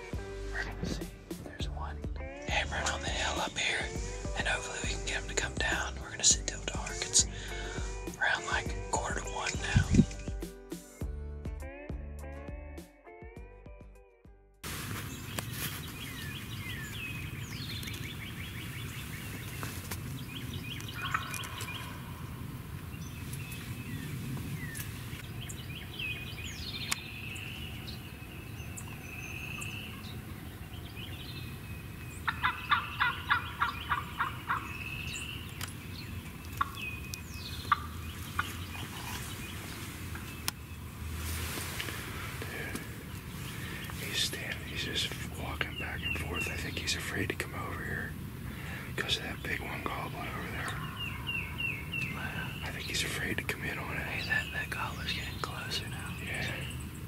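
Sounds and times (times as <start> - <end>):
songbirds chirping: 0.0 - 12.5, 14.7 - 57.0
turkey gobbling: 20.9 - 22.2, 32.2 - 34.8, 36.5 - 36.8, 37.5 - 39.4.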